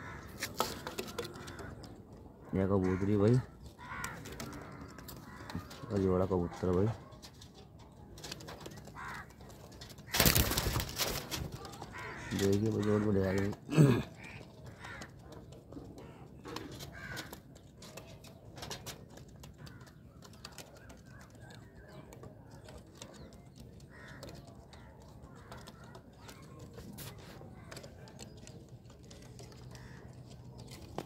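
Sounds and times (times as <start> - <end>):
crows cawing: 0.0 - 7.0, 8.7 - 17.9, 19.4 - 22.0, 23.1 - 31.0
pigeons cooing: 7.6 - 31.0.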